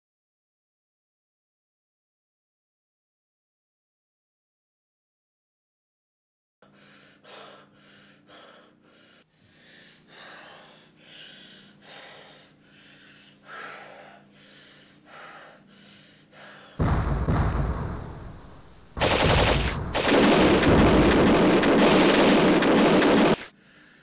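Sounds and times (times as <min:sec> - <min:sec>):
person breathing heavily: 0:06.6 - 0:16.9, 0:23.4 - 0:24.0
sudden loud burst: 0:16.8 - 0:23.4.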